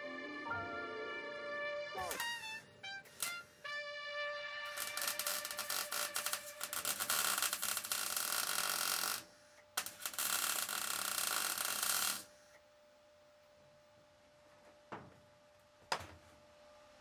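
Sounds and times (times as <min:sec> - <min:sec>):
welding arc crackling: 0:03.1 - 0:03.5, 0:04.7 - 0:12.3.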